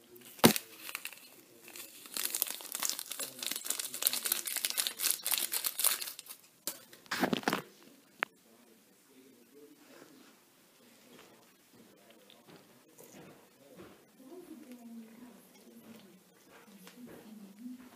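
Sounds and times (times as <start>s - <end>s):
plastic bag crinkling: 0.2s - 7.6s.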